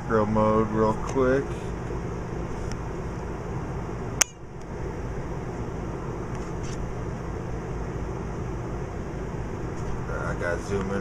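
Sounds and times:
low equipment hum: 0:00.0 - 0:11.0.

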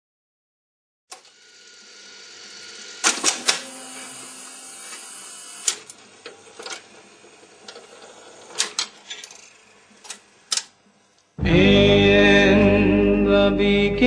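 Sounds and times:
record changer clicks and clunks: 0:03.0 - 0:04.1, 0:04.9 - 0:06.9, 0:08.5 - 0:09.4.

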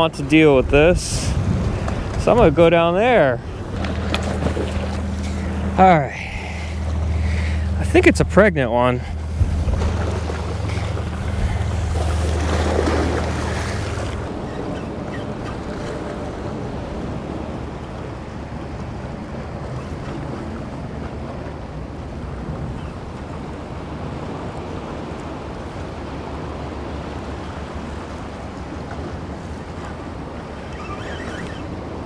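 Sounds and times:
wind rumble on microphone: 0:00.0 - 0:32.0
waves washing against rocks: 0:06.8 - 0:16.2.

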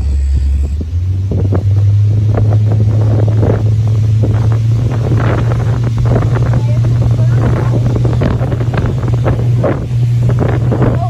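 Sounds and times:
boat motor droning: 0:00.0 - 0:11.0
wind buffeting microphone: 0:00.0 - 0:11.0.

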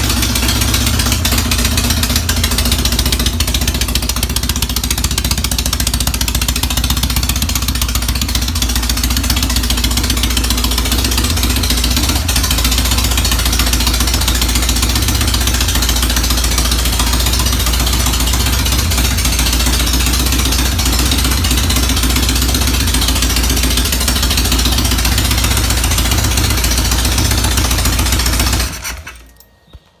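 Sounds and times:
motorcycle engine running: 0:00.0 - 0:29.9.

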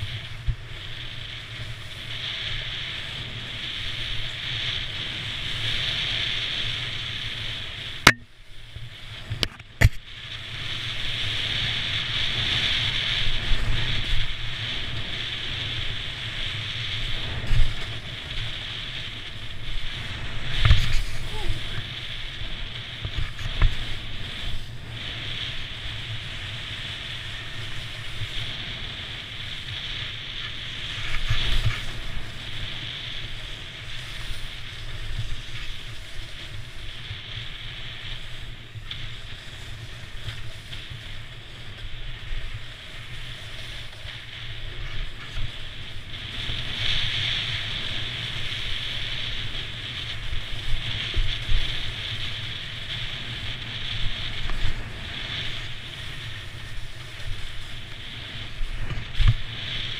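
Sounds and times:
snowboard scraping on snow: 0:00.0 - 0:59.9
wind rushing over microphone: 0:00.0 - 0:59.9.

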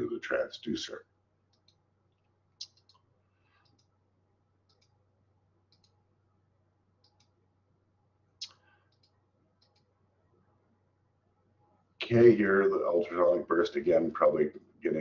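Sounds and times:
faint low hum: 0:00.0 - 0:15.0
computer mouse clicks: 0:01.5 - 0:04.0, 0:04.6 - 0:05.0, 0:05.7 - 0:06.0, 0:07.0 - 0:07.4, 0:08.4 - 0:09.9.

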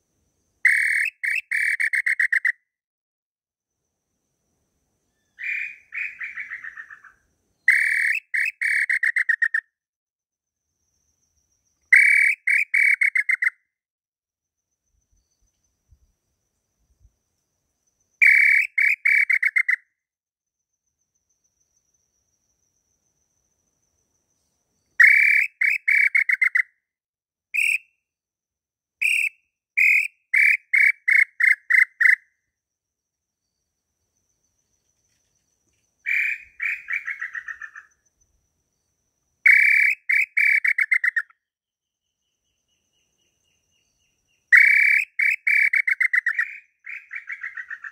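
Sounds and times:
whistled bird call: 0:00.6 - 0:02.6, 0:05.1 - 0:09.6, 0:11.8 - 0:13.6, 0:18.2 - 0:19.9, 0:24.8 - 0:26.7, 0:27.6 - 0:28.0, 0:29.0 - 0:32.2, 0:36.1 - 0:38.0, 0:39.4 - 0:41.3, 0:42.4 - 0:47.9.

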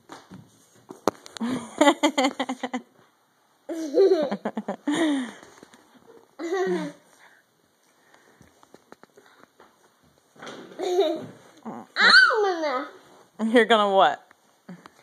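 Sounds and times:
child laughing and giggling: 0:03.7 - 0:04.8, 0:06.4 - 0:07.1, 0:10.8 - 0:11.4.

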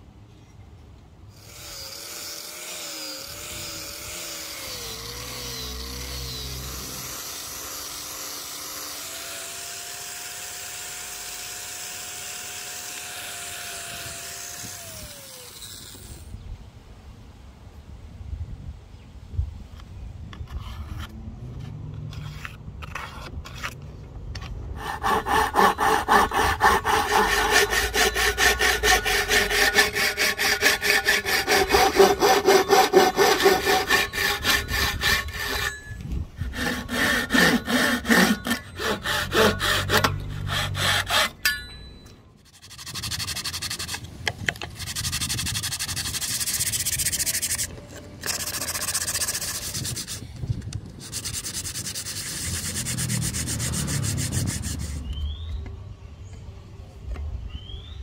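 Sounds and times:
pull saw cutting wood: 0:01.3 - 0:16.4, 0:24.4 - 0:55.2
hand sanding wood: 0:24.8 - 0:35.8, 0:36.5 - 0:41.3, 0:42.5 - 0:44.0, 0:44.6 - 0:50.3, 0:51.0 - 0:55.1.

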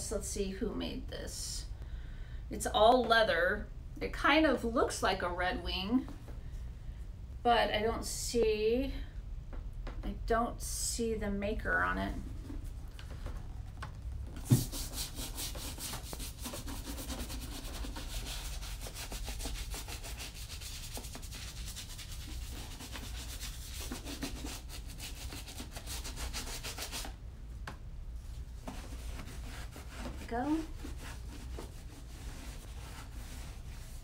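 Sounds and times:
brush scrubbing leather: 0:14.5 - 0:27.1, 0:28.7 - 0:34.0.

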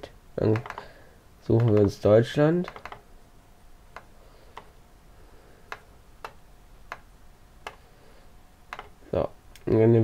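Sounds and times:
low steady hiss: 0:00.0 - 0:10.0
computer mouse clicks: 0:00.5 - 0:00.9, 0:01.6 - 0:01.9, 0:02.7 - 0:03.0, 0:03.9 - 0:04.7, 0:05.7 - 0:07.8, 0:08.7 - 0:09.0.

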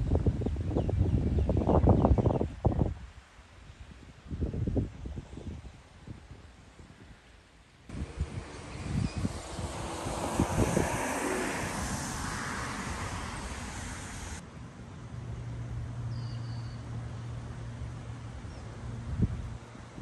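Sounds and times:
wind buffeting microphone: 0:00.0 - 0:07.2, 0:07.9 - 0:14.4, 0:17.8 - 0:20.0
faint bird chirp: 0:16.1 - 0:16.9.

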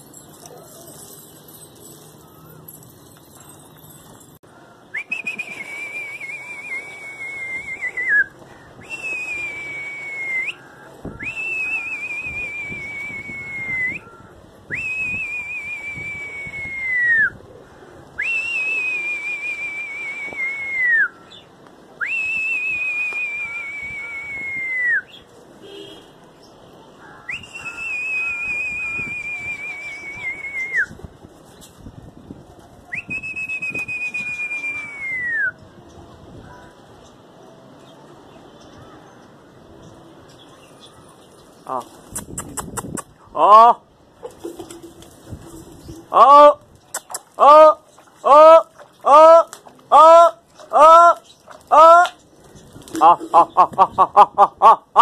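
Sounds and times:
man whistling long high notes: 0:04.9 - 0:10.6, 0:11.2 - 0:14.1, 0:14.7 - 0:17.4, 0:18.2 - 0:21.2, 0:22.0 - 0:25.1, 0:27.3 - 0:30.9, 0:33.0 - 0:35.6.

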